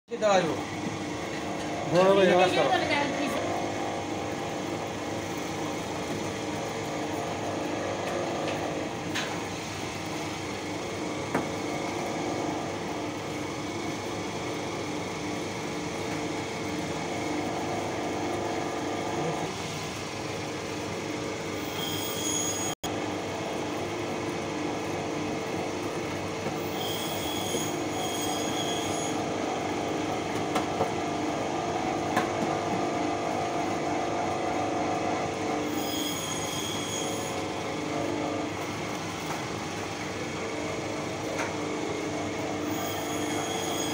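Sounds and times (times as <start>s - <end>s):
electric meat grinder running: 10.3s - 19.7s
thin high squeal: 21.7s - 22.8s, 26.7s - 29.2s, 35.7s - 37.4s, 42.7s - 43.9s.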